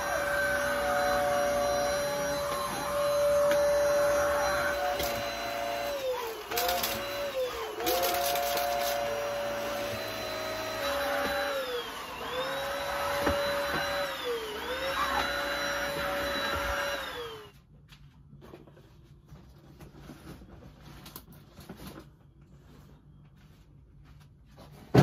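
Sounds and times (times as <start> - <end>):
vacuum cleaner whining: 0.0 - 17.6.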